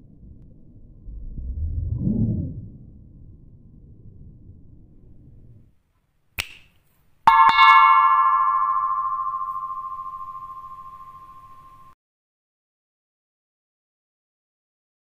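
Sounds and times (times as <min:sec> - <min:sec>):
bell-like chime: 0:07.3 - 0:12.0.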